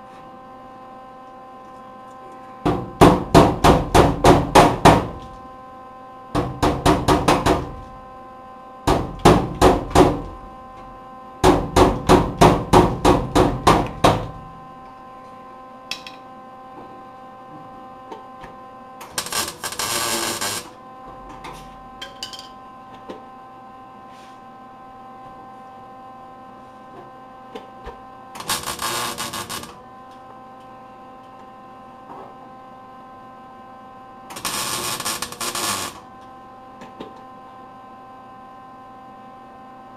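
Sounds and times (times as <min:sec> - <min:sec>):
steady electrical hum: 0:00.0 - 0:39.9
welding crackle: 0:19.0 - 0:20.8, 0:28.4 - 0:29.8, 0:34.3 - 0:36.0.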